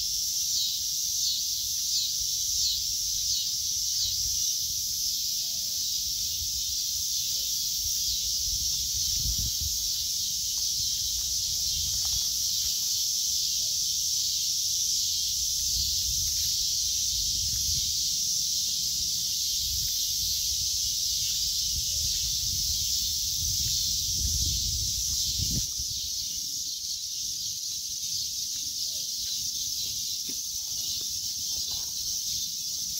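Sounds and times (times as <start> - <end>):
high-pitched insect chorus: 0.0 - 32.9
footsteps through leaf litter: 8.8 - 13.5.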